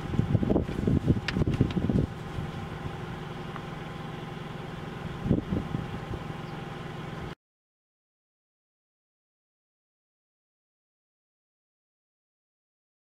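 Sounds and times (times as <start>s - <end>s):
car engine idling: 0.0s - 7.4s.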